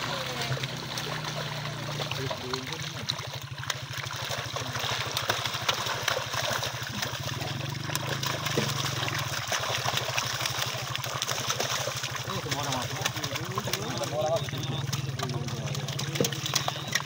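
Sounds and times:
motor throbbing: 0.0s - 11.5s
fish splashing in net: 0.0s - 17.0s.

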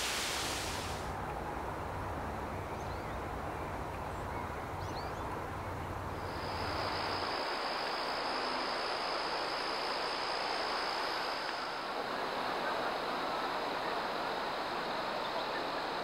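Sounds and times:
steady rushing noise: 0.0s - 1.2s, 6.0s - 16.0s
high-pitched insect trill: 6.2s - 11.9s.

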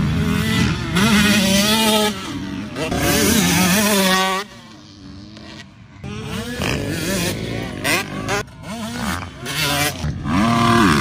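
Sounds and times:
dirt bike engine revving: 0.0s - 11.0s.

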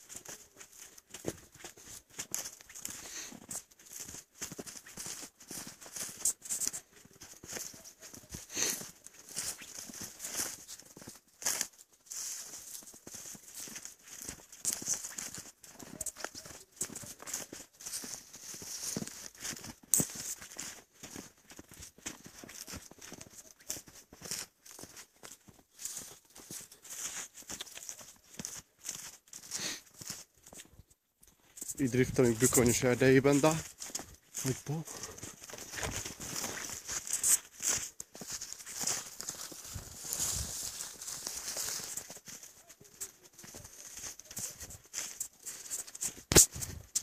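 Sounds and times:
footsteps crunching in snow: 0.0s - 47.0s
handling rustle: 31.3s - 47.0s.

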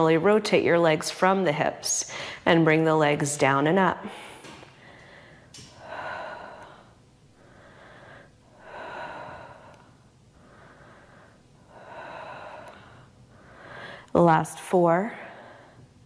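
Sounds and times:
woman breathing hard: 2.1s - 2.5s, 4.0s - 14.1s.

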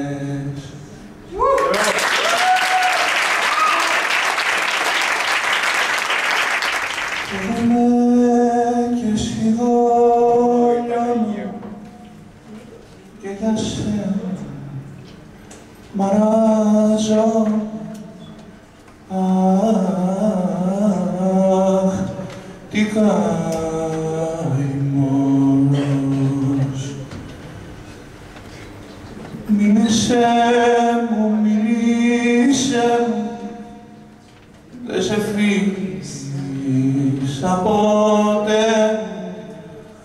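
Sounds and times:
man singing slow melody: 0.0s - 1.0s, 7.2s - 12.2s, 13.1s - 15.1s, 15.9s - 18.5s, 19.1s - 27.1s, 29.4s - 40.0s
audience applause: 1.5s - 7.5s.

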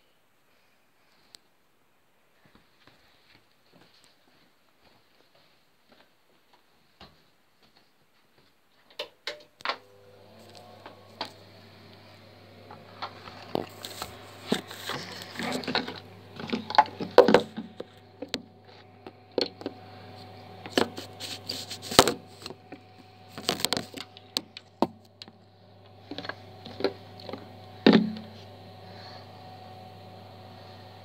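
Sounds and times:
steady low hum: 9.8s - 31.0s.

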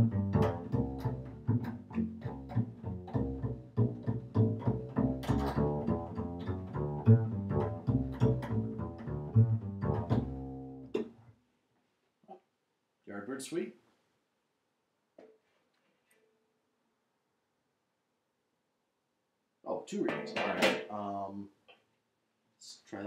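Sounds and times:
plucked double bass: 0.0s - 11.3s.

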